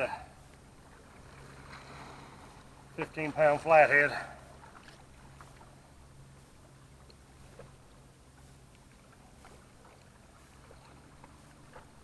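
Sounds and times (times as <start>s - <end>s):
soft ticks: 8.7s - 9.0s.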